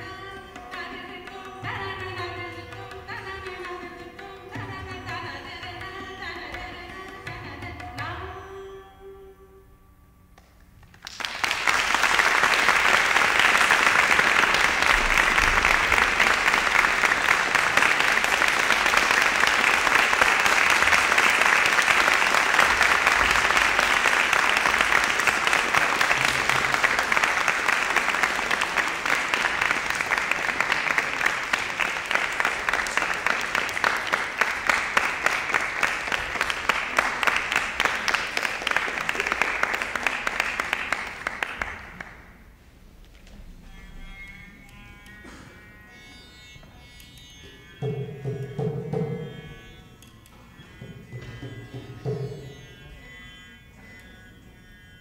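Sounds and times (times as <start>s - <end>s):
audience applauding: 10.8s - 42.4s.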